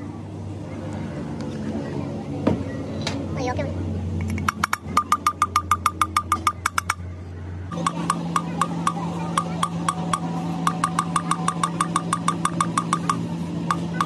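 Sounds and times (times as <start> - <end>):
steady low hum: 3.7 - 14.0
metal valve tapping its seat: 7.8 - 14.0.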